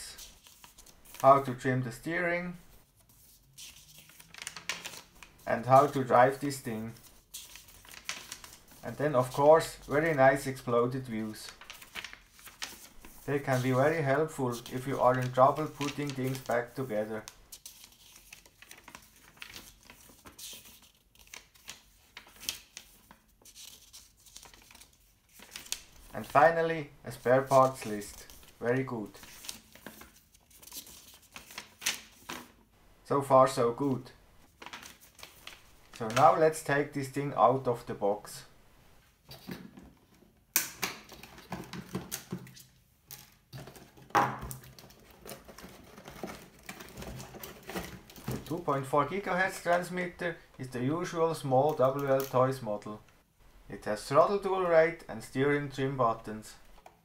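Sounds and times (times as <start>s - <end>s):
paper pages rustling: 0.0s - 1.9s, 2.6s - 32.6s, 33.8s - 37.9s, 41.0s - 50.2s
plastic handling clicks and rustles: 39.3s - 48.6s.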